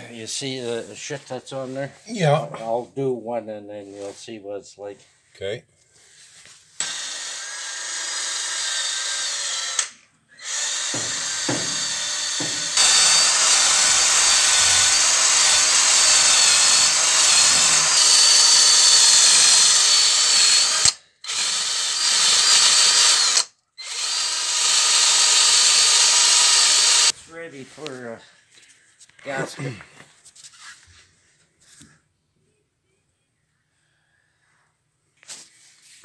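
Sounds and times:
electric drill whining: 0:06.8 - 0:27.2.

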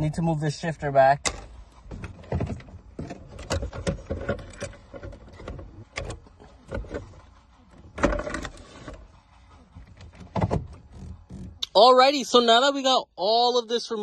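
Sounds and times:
plastic clatter: 0:01.3 - 0:07.2.

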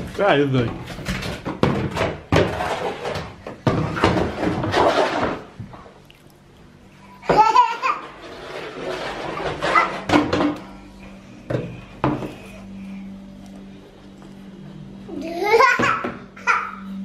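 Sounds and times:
plastic tub scraping on tiles: 0:00.0 - 0:06.0, 0:07.3 - 0:12.8
toddler laughing: 0:07.2 - 0:08.2, 0:15.2 - 0:17.0.

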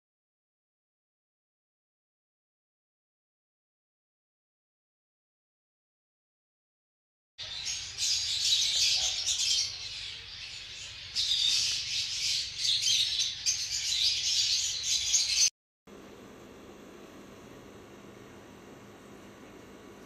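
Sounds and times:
lovebirds chattering and chirping: 0:07.4 - 0:15.5.

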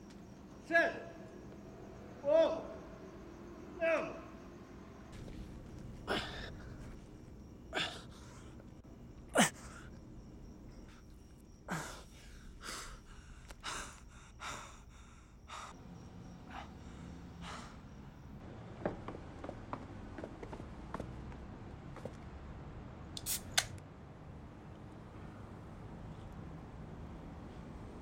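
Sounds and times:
person gasping breaths: 0:11.7 - 0:15.8.

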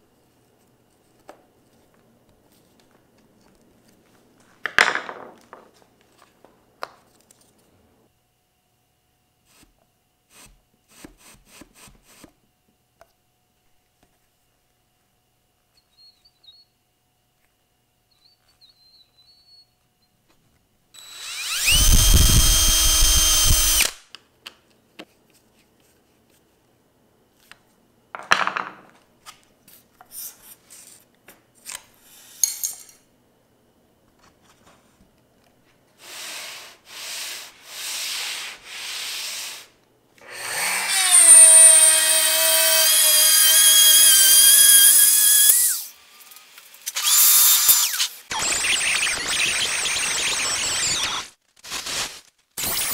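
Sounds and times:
electric router cutting: 0:21.0 - 0:24.0, 0:40.2 - 0:51.2.

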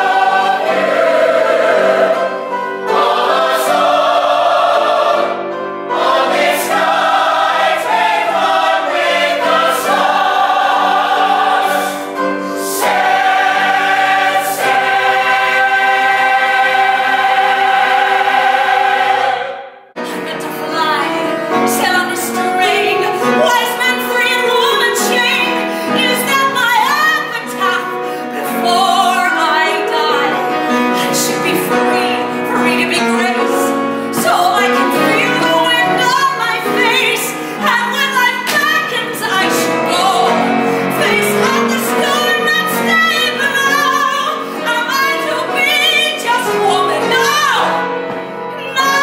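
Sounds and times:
held accompaniment chords: 0:00.0 - 0:23.1
woman singing: 0:20.0 - 0:30.4, 0:31.0 - 0:47.8, 0:48.6 - 0:49.0.

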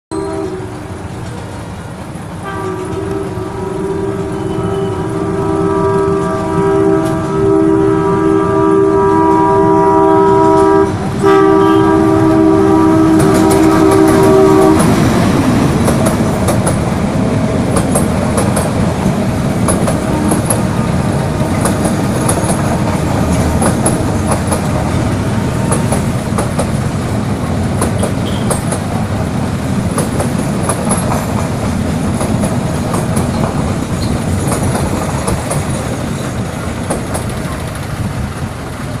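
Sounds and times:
train horn blast: 0:00.1 - 0:01.0, 0:02.4 - 0:15.2, 0:19.9 - 0:22.0, 0:28.0 - 0:28.6
train coaches rumbling: 0:00.1 - 0:39.0
wheels clicking over rail joints: 0:10.1 - 0:39.0.

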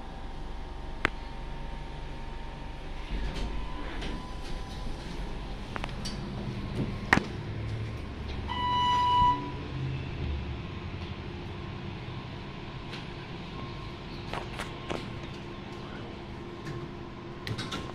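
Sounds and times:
low steady hum: 0:00.0 - 0:17.7
elevator electronic beep: 0:08.4 - 0:10.0, 0:13.4 - 0:14.2.

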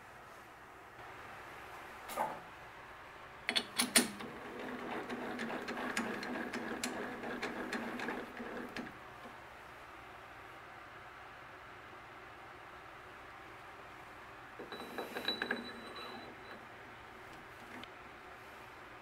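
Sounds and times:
metal clicks in lathe chuck: 0:03.5 - 0:08.9
mechanical rattling: 0:03.6 - 0:08.9.

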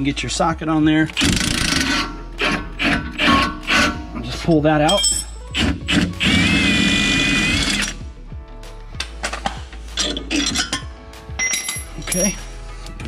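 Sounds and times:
power tool spinning out bolt: 0:05.6 - 0:08.0.

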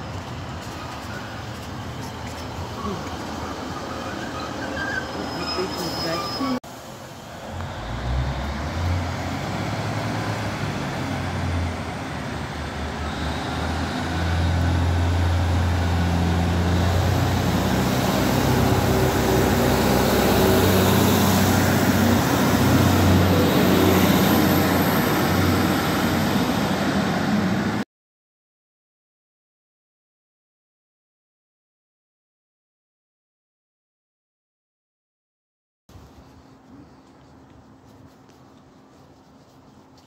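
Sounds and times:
diesel train engine humming: 0:00.0 - 0:27.8.

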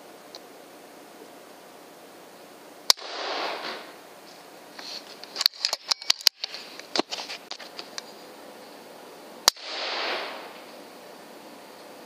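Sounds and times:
faint steady hiss: 0:00.0 - 0:12.0
sharp light clicks and rattles: 0:05.1 - 0:08.1.

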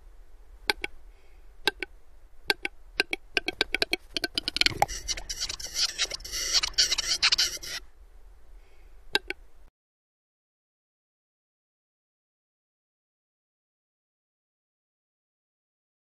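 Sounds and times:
bird scraping hissing whetting: 0:04.7 - 0:07.8.

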